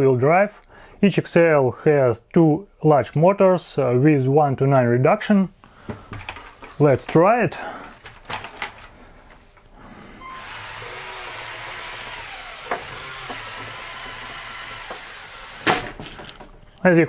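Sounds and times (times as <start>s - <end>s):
motors and gears whirring: 9.9s - 16.3s.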